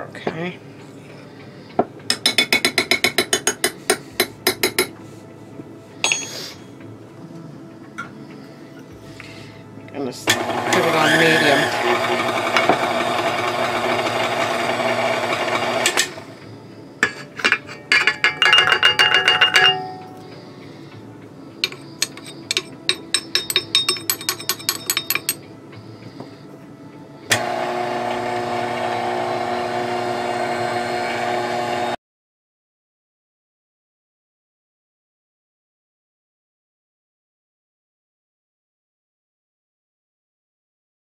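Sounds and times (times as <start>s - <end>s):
stand mixer running: 10.2s - 16.4s, 27.3s - 32.0s
measuring cup clinking on steel bowl: 17.0s - 20.2s, 21.6s - 25.4s.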